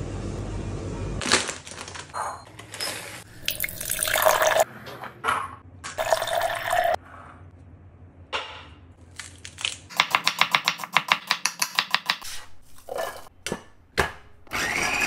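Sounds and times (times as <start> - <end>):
water pouring from kettle: 3.4 - 4.6.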